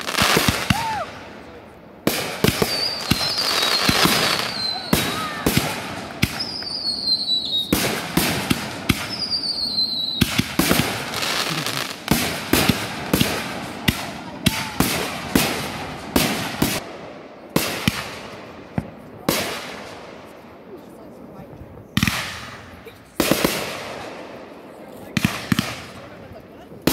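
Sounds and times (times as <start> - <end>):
fireworks bangs: 0.0 - 20.5, 21.9 - 26.9
firework whistles: 2.4 - 12.4.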